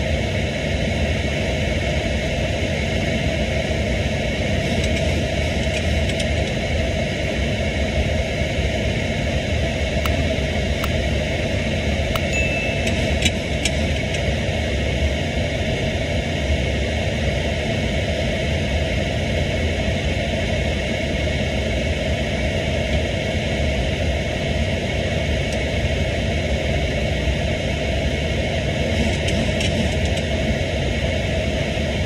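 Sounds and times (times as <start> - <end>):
low hum: 3.4 - 16.3.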